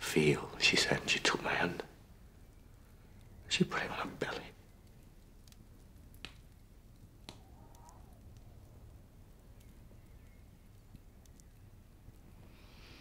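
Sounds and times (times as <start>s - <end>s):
faint clicks: 4.3s - 12.3s.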